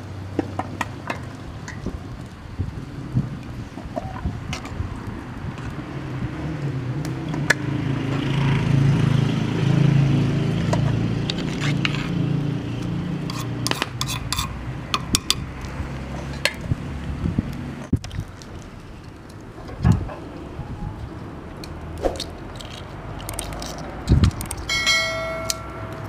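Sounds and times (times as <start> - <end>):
metal spoon clinking on pot: 13.3 - 15.4, 24.7 - 26.0.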